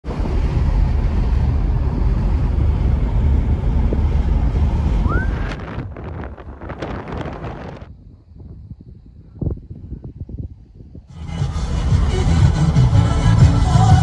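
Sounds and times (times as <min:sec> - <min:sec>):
car road rumble and wind: 0:00.0 - 0:14.0
short rising whistle: 0:05.0 - 0:05.6.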